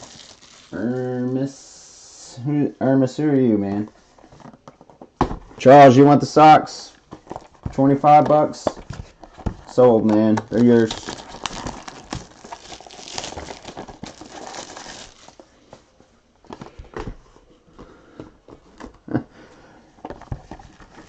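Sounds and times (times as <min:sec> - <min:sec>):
plastic wrapping crinkling: 0:00.0 - 0:01.4, 0:10.4 - 0:15.5.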